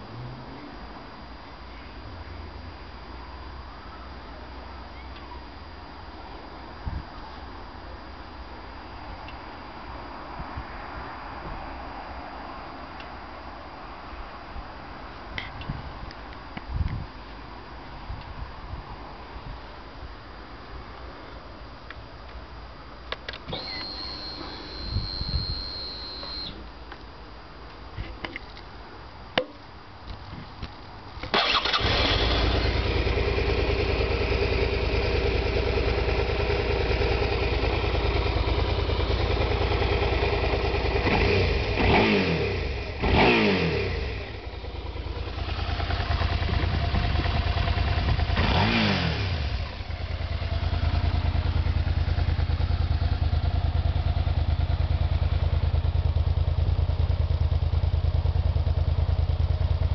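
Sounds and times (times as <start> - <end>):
motorcycle engine starting and revving: 23.2 - 26.6, 31.2 - 59.9.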